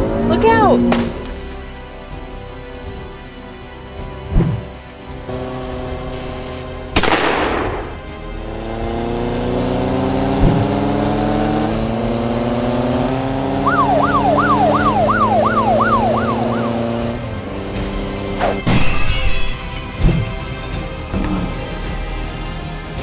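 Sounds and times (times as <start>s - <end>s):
motorcycle engines rising in pitch: 7.8s - 18.6s
police siren: 13.5s - 17.2s.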